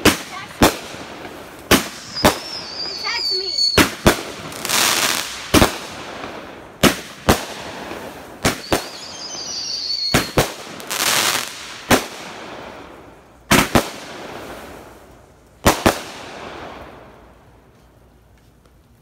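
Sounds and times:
firework bangs: 0:00.0 - 0:14.9, 0:15.6 - 0:17.2
firework crackling: 0:00.0 - 0:19.0
firework whistle: 0:01.8 - 0:04.0, 0:08.5 - 0:10.6.

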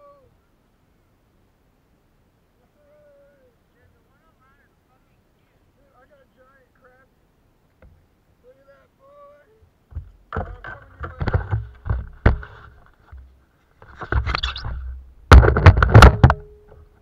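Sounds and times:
knocks and scrapes on plastic kayak: 0:09.9 - 0:16.9.

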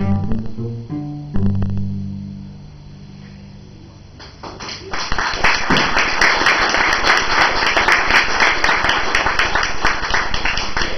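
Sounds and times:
string quartet chord: 0:00.0 - 0:03.3
audience applause: 0:04.5 - 0:10.9.

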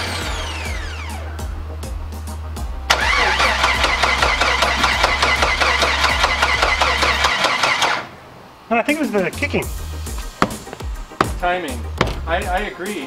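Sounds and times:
engine cranking and chugging: 0:02.9 - 0:08.1.

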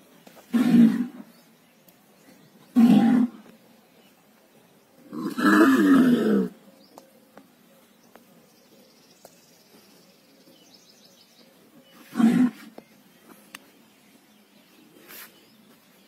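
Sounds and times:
bull calling: 0:00.5 - 0:01.2, 0:02.7 - 0:03.5, 0:05.1 - 0:06.6, 0:12.0 - 0:12.7.

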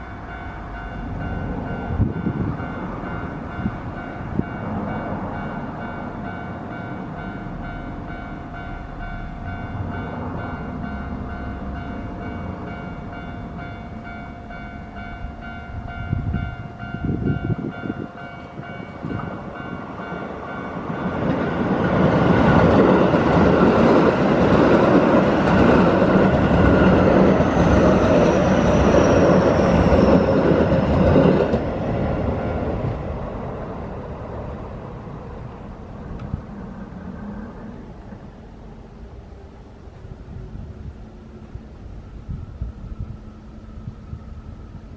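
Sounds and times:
level crossing bell ringing: 0:00.0 - 0:21.1
train falling whine: 0:00.0 - 0:44.9
train passing: 0:00.0 - 0:44.9.

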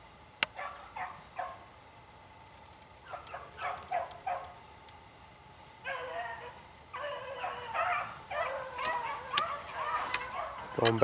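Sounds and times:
dogs baying: 0:00.6 - 0:01.6, 0:03.0 - 0:04.6, 0:05.8 - 0:11.0
dogs yelping: 0:00.6 - 0:01.6, 0:03.0 - 0:04.6, 0:05.8 - 0:11.0.

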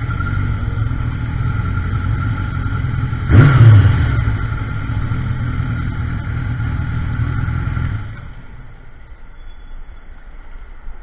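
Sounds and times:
motorcycle engine running: 0:00.0 - 0:08.6.

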